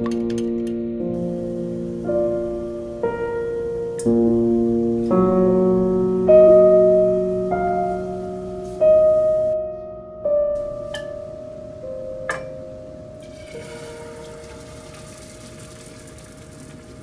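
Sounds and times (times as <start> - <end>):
slow piano music: 0.0 - 17.0.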